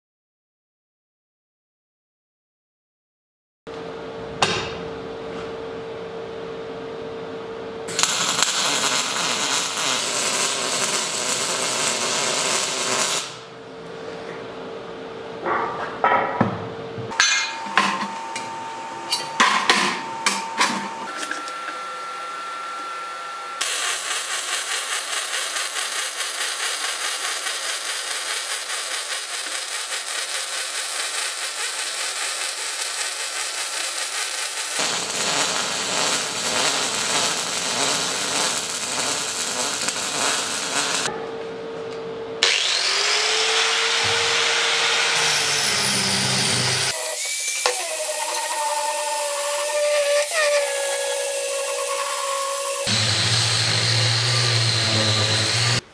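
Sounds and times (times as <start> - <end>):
angle grinder grinding steel: 7.9 - 13.4, 17.2 - 41.1, 42.4 - 55.8
welder crackling hiss: 7.9 - 13.4, 23.6 - 41.1, 44.1 - 55.8.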